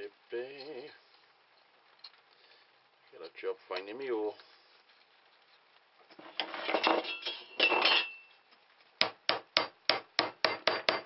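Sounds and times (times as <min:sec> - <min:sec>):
wood parts scraping together: 0:04.3 - 0:07.6
hammer tapping nail into wood: 0:09.0 - 0:11.0.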